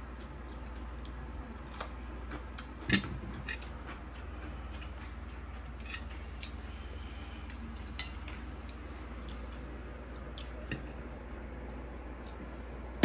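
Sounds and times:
chewing raw cucumber: 0.0s - 6.6s
steady low hum: 0.0s - 13.0s.

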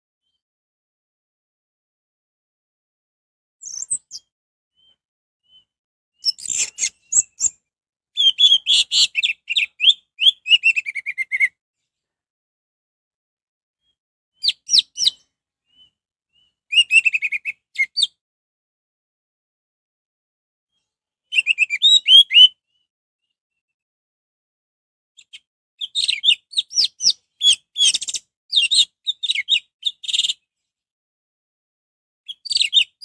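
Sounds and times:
thrush singing whistled notes: 3.6s - 7.6s, 8.2s - 11.6s, 14.4s - 18.2s, 21.3s - 23.4s.

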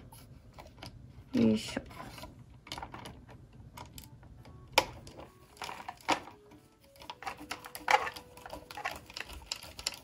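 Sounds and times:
screwdriver clicking and scraping: 6.9s - 10.0s.

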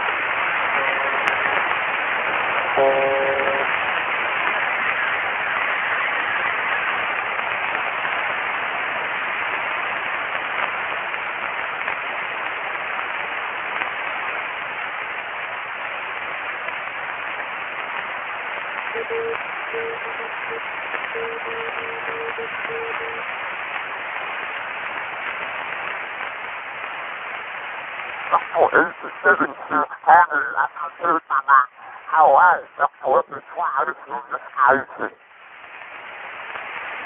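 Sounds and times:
radio static hiss: 0.0s - 37.0s
short buzzy tone: 2.8s - 3.7s.

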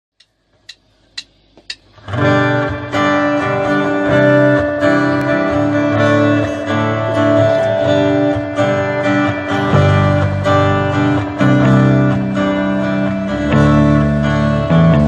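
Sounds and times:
sharp clicks: 0.2s - 1.9s
band song with strummed guitar: 2.0s - 15.0s.

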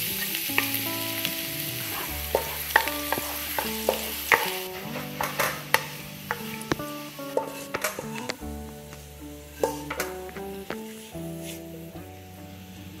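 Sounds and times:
garlic sizzling in oil: 0.0s - 13.0s
spatula knocking against pan: 7.4s - 8.3s, 9.6s - 10.8s.

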